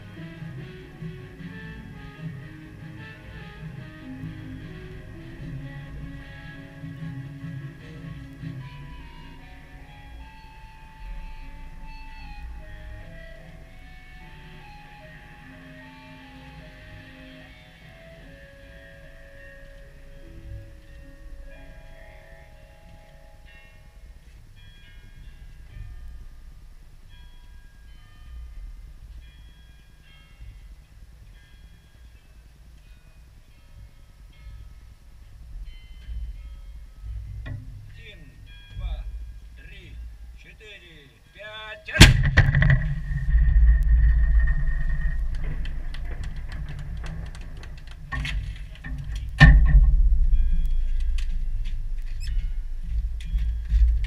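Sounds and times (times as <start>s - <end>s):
distant bells chiming: 4.4s - 42.0s, 42.6s - 54.0s
field gun blank shot: 42.0s - 43.0s
wind rumbling on microphone: 42.0s - 54.0s.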